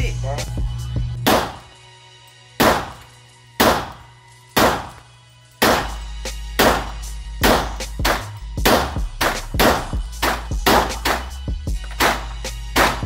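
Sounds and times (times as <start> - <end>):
handgun shots: 1.2 - 1.8, 2.6 - 6.0, 6.6 - 13.0.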